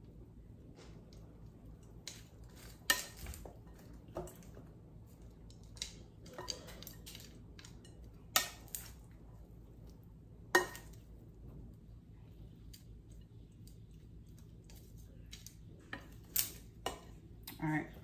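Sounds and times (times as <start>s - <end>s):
soft stirring of food: 0.0s - 18.0s.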